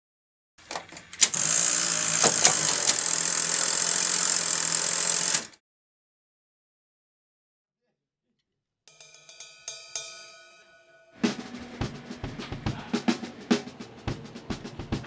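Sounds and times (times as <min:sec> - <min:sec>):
sharp mechanical clicks: 0:00.7 - 0:05.6
hissing whir: 0:01.1 - 0:05.5.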